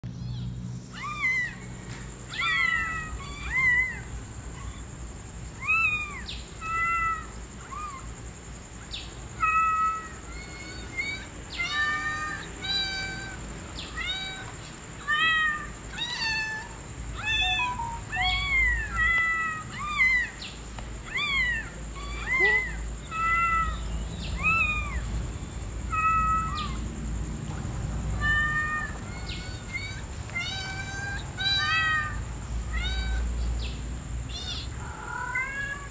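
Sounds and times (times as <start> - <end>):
kitten meowing: 2.3 - 4.8, 9.4 - 25.0, 25.9 - 26.8, 28.2 - 33.2, 34.3 - 35.9.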